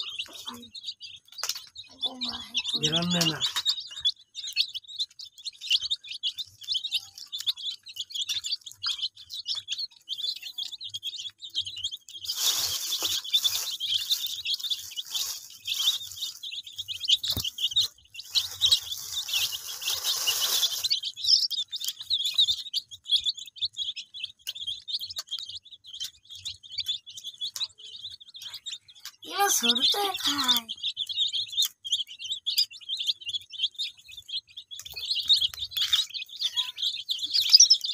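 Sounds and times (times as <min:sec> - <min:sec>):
chicks peeping: 0:00.0 - 0:37.9
rustling noise: 0:12.2 - 0:21.3.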